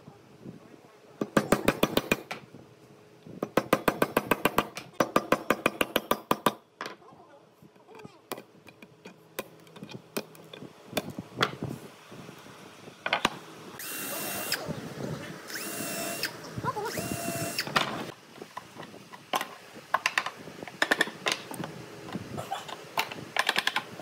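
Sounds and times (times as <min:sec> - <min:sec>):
power drill whirring: 0:13.8 - 0:14.6, 0:15.5 - 0:17.8.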